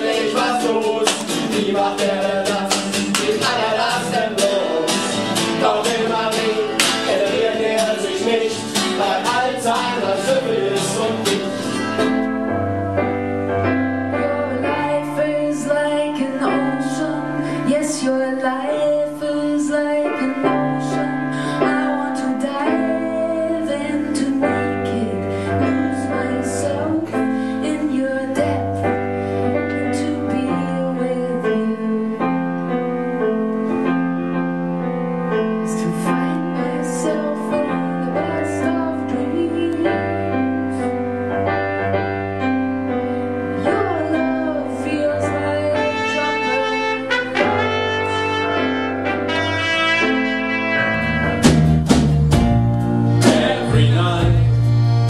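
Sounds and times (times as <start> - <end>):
person singing: 0.0 - 11.9, 14.1 - 28.9, 53.2 - 54.6
bass notes: 0.0 - 17.8, 47.3 - 55.0
acoustic guitar: 0.0 - 55.0
keyboard chords: 0.0 - 55.0.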